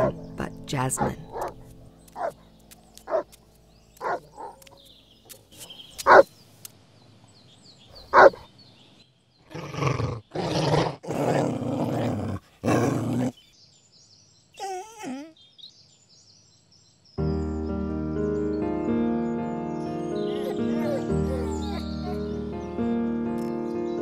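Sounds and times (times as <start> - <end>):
dog barking: 2.2 - 2.4, 3.1 - 3.3, 4.0 - 4.6, 8.1 - 8.4
dog growling: 9.5 - 13.4, 20.3 - 22.2.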